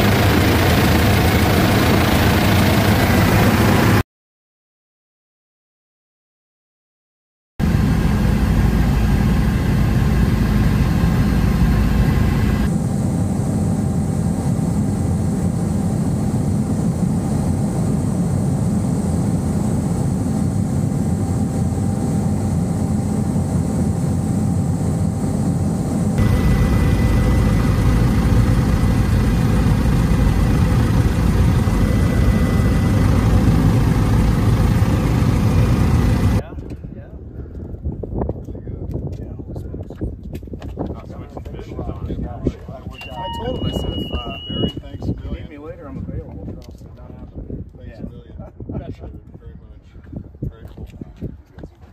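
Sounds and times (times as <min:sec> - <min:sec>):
helicopter engine and rotor drone: 0:00.0 - 0:04.0, 0:07.6 - 0:36.4, 0:42.7 - 0:46.8.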